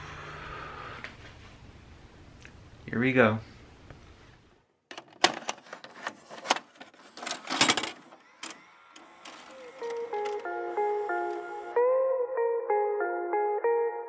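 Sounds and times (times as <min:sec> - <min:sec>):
mechanical clicks and clunks: 0:04.9 - 0:11.5
plucked guitar music: 0:09.6 - 0:14.0.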